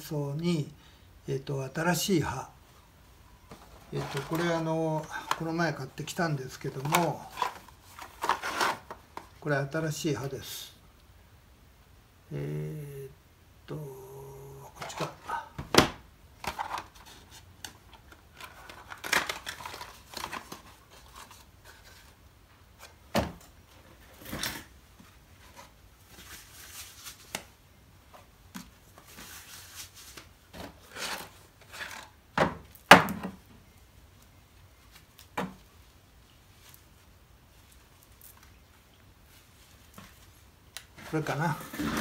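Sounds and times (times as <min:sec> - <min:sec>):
packaging rustling: 0:03.5 - 0:09.4, 0:16.4 - 0:22.2.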